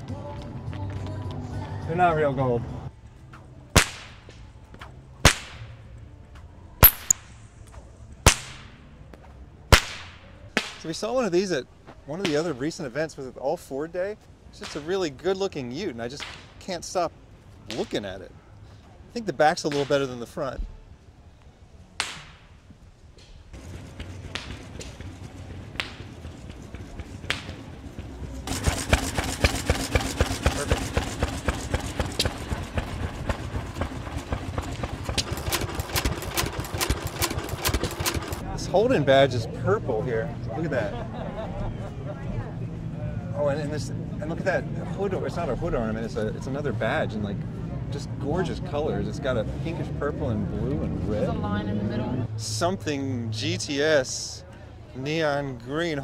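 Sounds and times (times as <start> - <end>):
whip cracking: 3.8 - 5.8, 6.8 - 8.8, 9.7 - 10.9, 14.6 - 14.9, 16.2 - 16.6, 19.7 - 20.2, 22.0 - 22.6, 24.0 - 25.1, 25.7 - 26.3, 27.2 - 27.8, 28.5 - 32.9, 34.6 - 38.4
stationary engine chuffing: 23.5 - 39.3.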